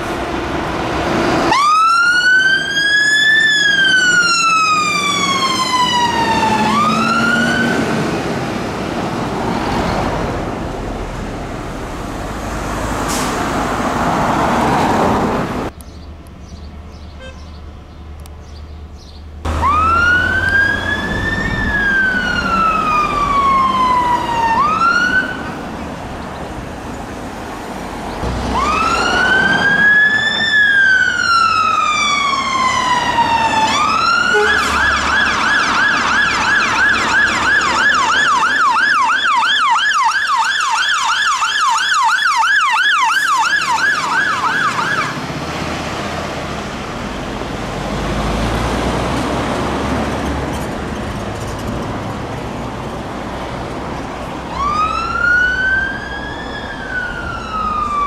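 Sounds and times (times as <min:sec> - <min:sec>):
traffic engine and road noise: 0:00.0 - 0:58.0
fire engine siren wailing and yelping: 0:01.5 - 0:10.2, 0:19.5 - 0:25.6, 0:28.4 - 0:45.4, 0:54.4 - 0:58.0.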